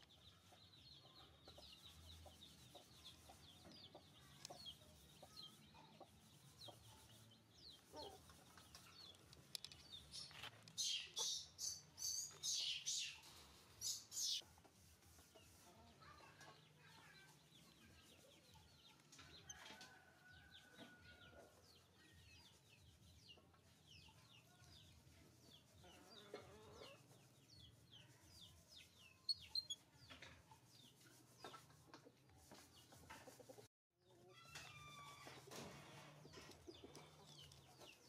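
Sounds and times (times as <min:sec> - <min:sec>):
chickens clucking: 0:00.0 - 0:14.4, 0:25.8 - 0:27.2, 0:29.3 - 0:34.3, 0:35.3 - 0:38.0
chicks peeping: 0:00.0 - 0:14.4, 0:20.6 - 0:31.7.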